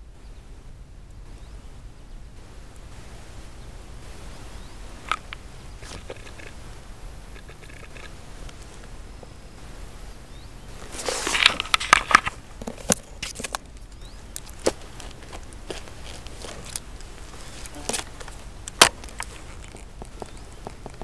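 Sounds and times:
grass rustling and crackling: 0.0s - 21.0s
sharp clicks: 5.0s - 6.6s.

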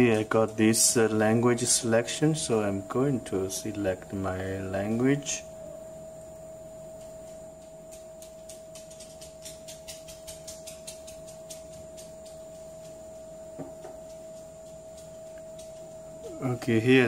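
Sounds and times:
high-pitched whine: 0.0s - 17.0s.

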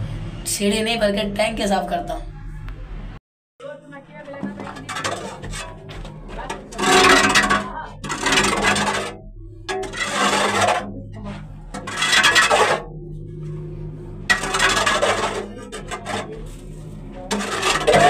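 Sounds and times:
scraper scraping plaster walls: 4.3s - 18.0s.

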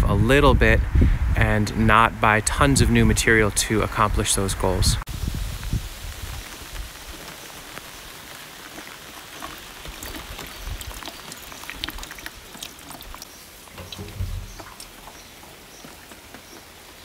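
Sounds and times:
rain falling: 5.1s - 17.0s
raindrops ticking close by: 5.5s - 17.0s.

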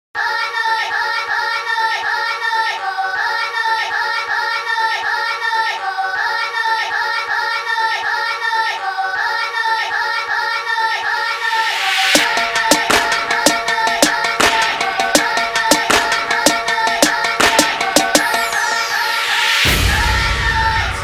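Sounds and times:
background music: 11.3s - 21.0s.

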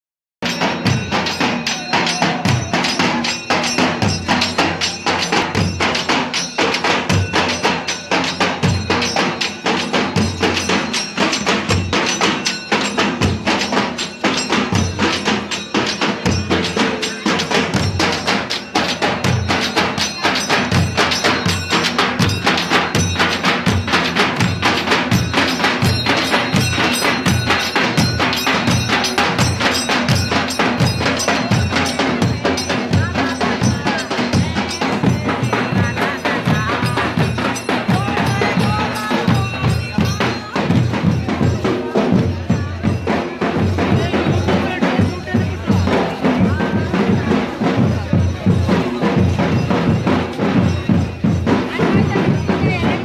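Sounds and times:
drums beaten in driving rhythm: 0.4s - 53.0s.

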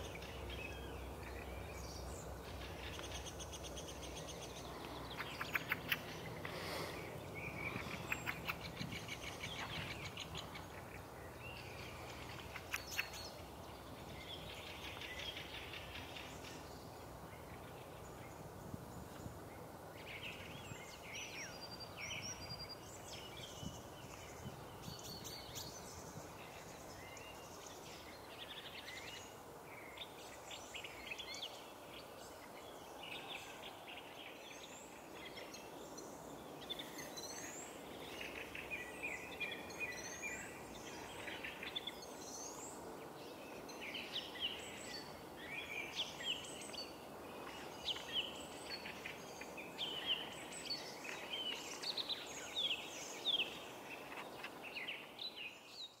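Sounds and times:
steady background hum: 0.0s - 24.3s.

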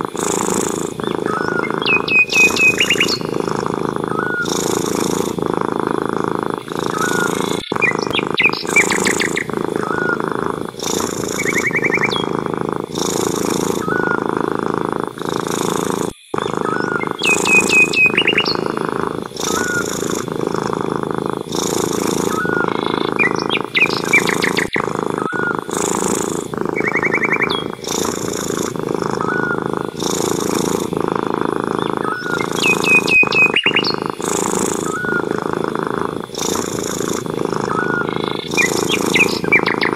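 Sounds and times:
cat purring: 0.0s - 39.9s
bird chirps and trills: 0.2s - 3.5s, 4.1s - 5.3s, 6.7s - 12.3s, 13.0s - 14.2s, 16.3s - 20.2s, 21.5s - 28.6s, 29.2s - 30.8s, 31.7s - 35.4s, 36.4s - 39.9s.

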